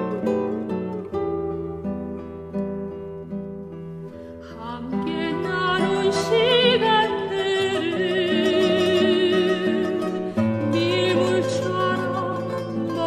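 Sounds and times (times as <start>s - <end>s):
plucked guitar: 0.0s - 13.0s
soprano singing with vibrato: 4.5s - 13.0s.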